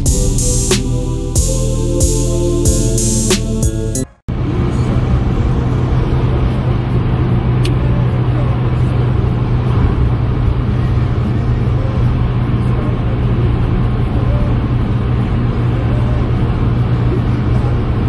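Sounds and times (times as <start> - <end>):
background music with a beat: 0.0 - 4.2
car driving on motorway: 4.3 - 18.0.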